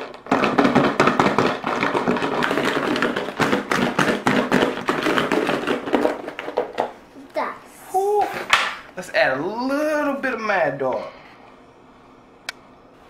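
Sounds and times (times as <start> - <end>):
food clattering in plastic tub: 0.0 - 7.0.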